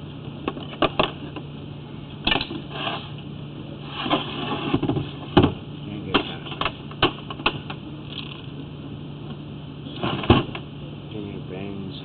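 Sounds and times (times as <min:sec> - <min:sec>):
steady low hum: 0:00.0 - 0:12.0
sharp clicks and knocks: 0:06.1 - 0:08.4.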